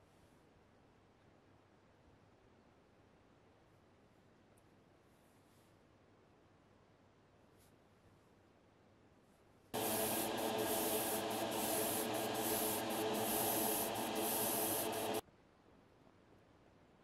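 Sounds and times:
motor hum: 0:09.8 - 0:15.2
spray paint hiss: 0:09.8 - 0:15.2.

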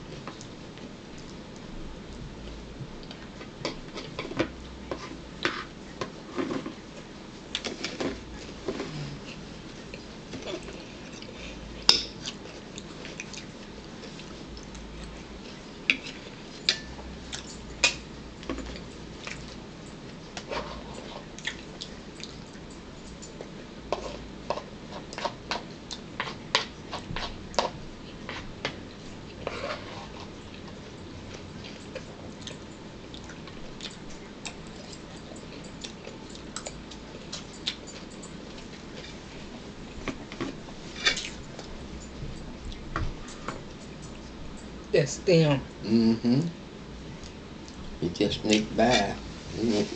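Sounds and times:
chewing: 0:07.0 - 0:44.7.

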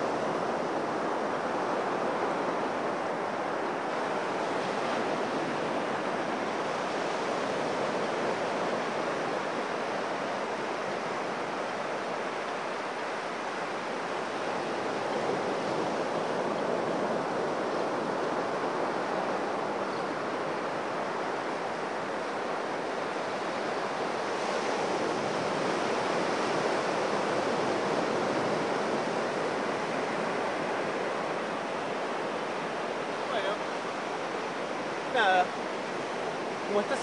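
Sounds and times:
ocean surf breaking on beach: 0:00.0 - 0:37.0.

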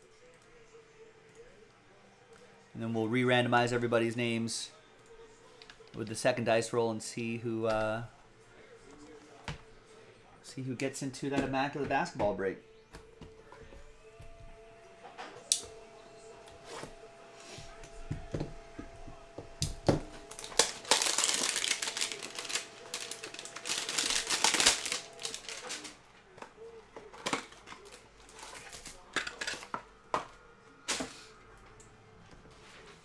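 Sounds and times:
plastic wrapper crinkling: 0:20.2 - 0:26.0.

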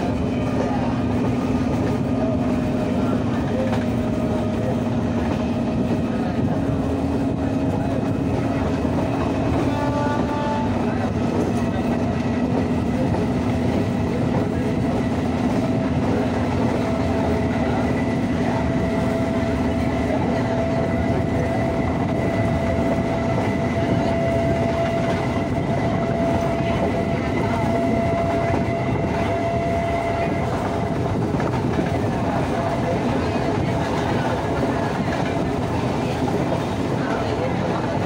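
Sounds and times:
train rumble and rail noise: 0:00.0 - 0:38.0.

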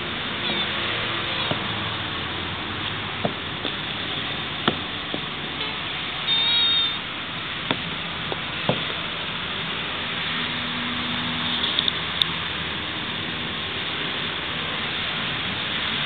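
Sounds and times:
tortoise squeaking call: 0:00.4 - 0:00.8, 0:06.2 - 0:07.1
tortoise shells clicking and knocking: 0:02.8 - 0:05.4.

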